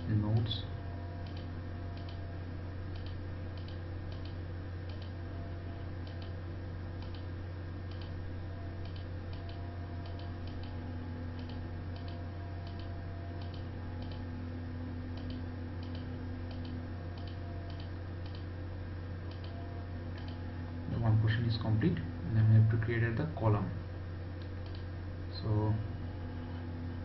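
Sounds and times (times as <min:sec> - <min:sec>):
low electrical hum: 0:00.0 - 0:27.0
computer mouse clicking: 0:01.2 - 0:02.2, 0:02.9 - 0:05.2, 0:06.0 - 0:06.4, 0:07.0 - 0:07.3, 0:07.9 - 0:08.2, 0:08.8 - 0:14.3, 0:15.1 - 0:18.5, 0:19.3 - 0:20.4, 0:24.4 - 0:24.9.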